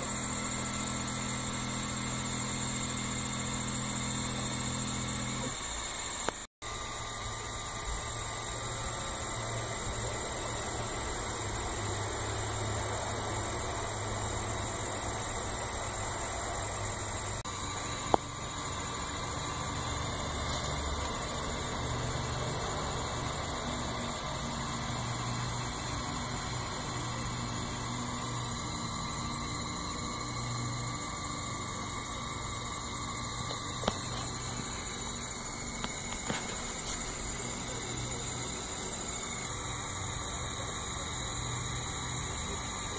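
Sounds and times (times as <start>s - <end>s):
laser engraver hissing and whining: 0.0s - 42.9s
stepper motors humming: 0.0s - 42.9s.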